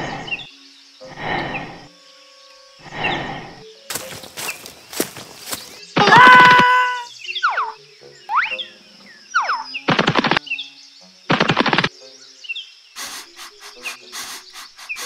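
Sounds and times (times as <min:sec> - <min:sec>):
harsh rasping animal calls: 0:02.8 - 0:03.6, 0:04.9 - 0:08.6
whistling animal chirps: 0:05.7 - 0:10.8.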